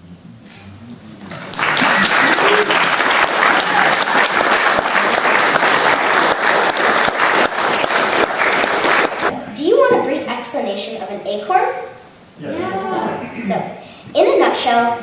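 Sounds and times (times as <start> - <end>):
audience applauding: 1.2 - 9.3.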